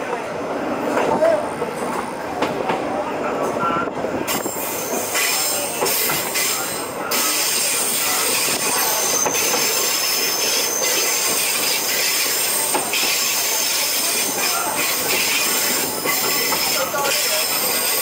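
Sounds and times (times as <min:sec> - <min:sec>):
rail clacks: 0:00.0 - 0:18.0
train rolling noise: 0:00.0 - 0:18.0
wheel squeal: 0:04.5 - 0:18.0.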